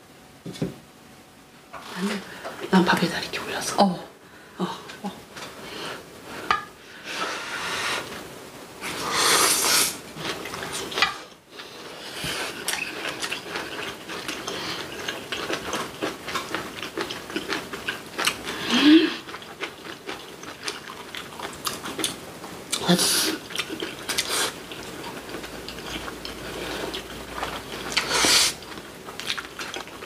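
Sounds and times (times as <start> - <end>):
person humming: 18.6 - 19.2.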